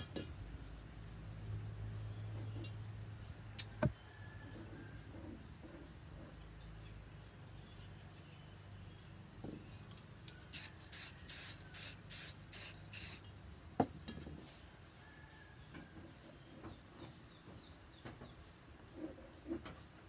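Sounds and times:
spray can hissing bursts: 0:10.5 - 0:13.3.

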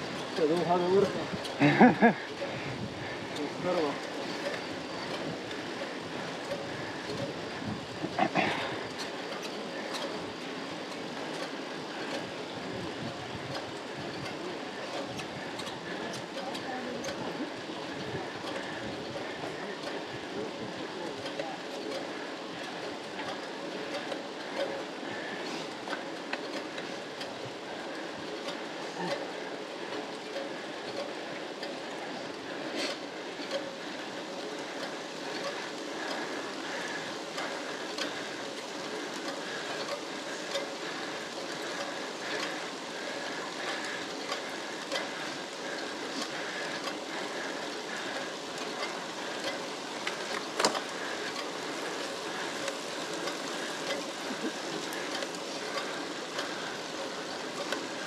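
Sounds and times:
bicycle chains and tyres whirring: 0:00.0 - 0:58.0
bicycle clicks: 0:00.0 - 0:58.0.

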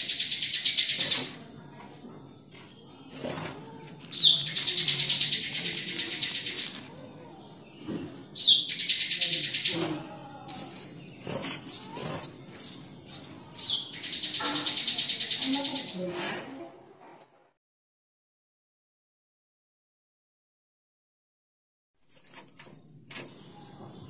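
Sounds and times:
nestlings begging trills: 0:00.0 - 0:16.1, 0:22.1 - 0:24.0.

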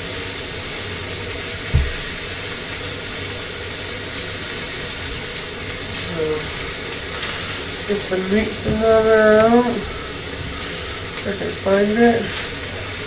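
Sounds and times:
steak sizzling in a hot pan: 0:00.0 - 0:13.0
dull low thump: 0:01.7 - 0:02.2.

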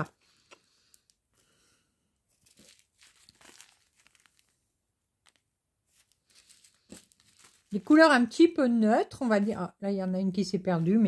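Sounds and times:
plastic bags crinkling: 0:02.3 - 0:08.5.

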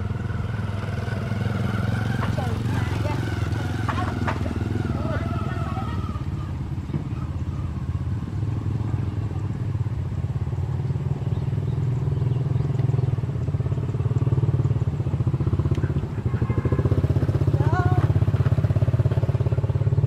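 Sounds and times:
small engine running: 0:00.0 - 0:20.0.

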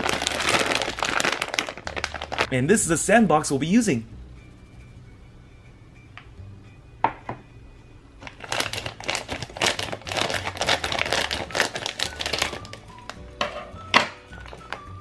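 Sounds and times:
plastic crinkling: 0:00.0 - 0:02.5, 0:08.2 - 0:13.2
scissors cutting plastic bag: 0:00.0 - 0:02.5, 0:08.2 - 0:13.1.

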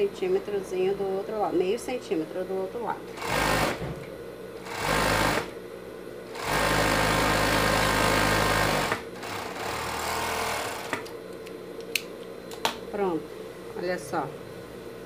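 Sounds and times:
low steady hum: 0:00.0 - 0:03.2
overlock machine stitching: 0:03.2 - 0:03.8, 0:04.6 - 0:05.5, 0:06.3 - 0:11.0.

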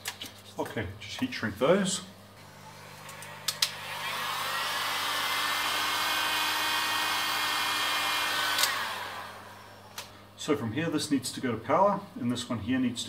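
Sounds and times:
heat gun fan whine: 0:01.2 - 0:11.0
heat gun switch click: 0:03.1 - 0:03.8, 0:08.5 - 0:08.8.

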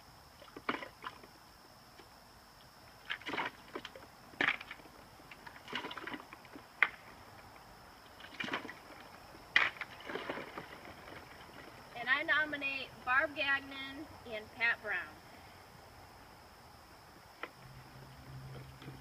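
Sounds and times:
ice clattering on plastic: 0:03.1 - 0:07.0, 0:08.2 - 0:11.8.

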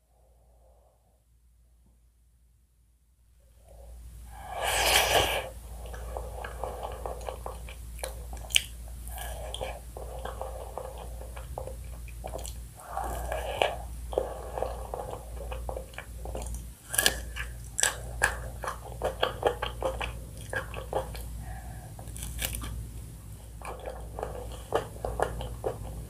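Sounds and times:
chewing wet mouth sounds: 0:04.6 - 0:26.0
chocolate coating crunching: 0:22.0 - 0:26.0.

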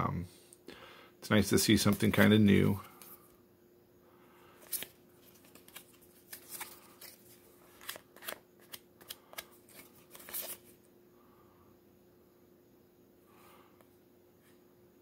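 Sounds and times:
cards flicking and sliding: 0:04.6 - 0:10.7.

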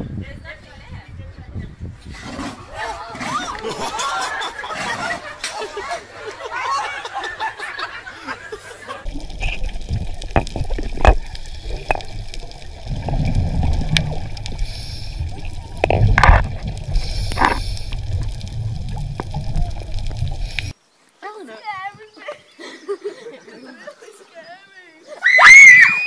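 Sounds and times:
low rumble of water underwater: 0:09.0 - 0:20.7
bubbling: 0:09.0 - 0:20.8.

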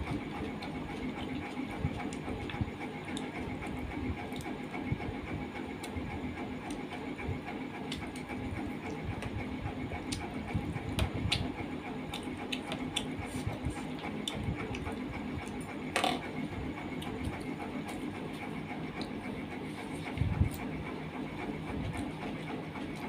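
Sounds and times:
steady background hum: 0:00.0 - 0:23.0
chewing and mouth sounds: 0:00.1 - 0:04.7, 0:11.3 - 0:15.7.

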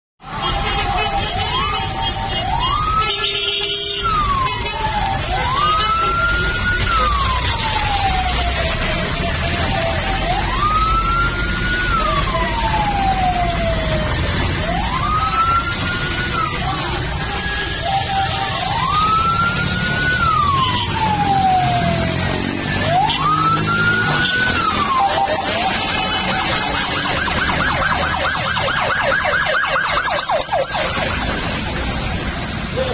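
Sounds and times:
fire truck siren wailing: 0:00.2 - 0:32.9
traffic noise: 0:00.2 - 0:32.9
lower siren tone: 0:04.0 - 0:31.8
traffic hiss on wet road: 0:30.4 - 0:32.9.

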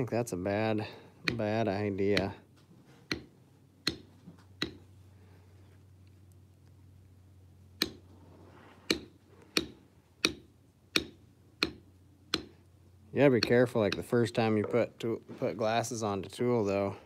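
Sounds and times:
maul tapping stamping tool: 0:01.2 - 0:02.4, 0:03.1 - 0:04.9, 0:07.8 - 0:08.1, 0:08.8 - 0:12.6, 0:13.4 - 0:14.8.

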